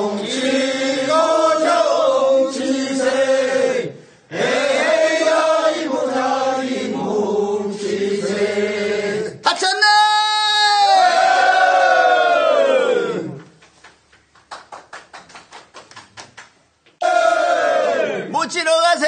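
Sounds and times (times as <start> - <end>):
unaccompanied folk singing: 0.0 - 9.4.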